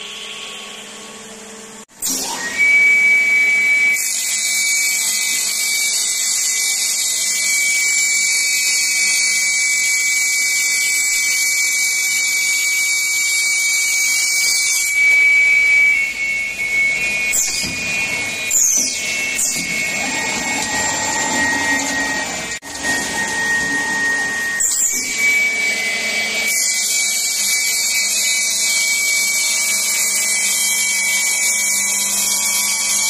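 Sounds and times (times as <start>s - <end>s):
machine high-pitched whine: 0.0s - 33.0s
short falling squeals: 15.0s - 26.2s.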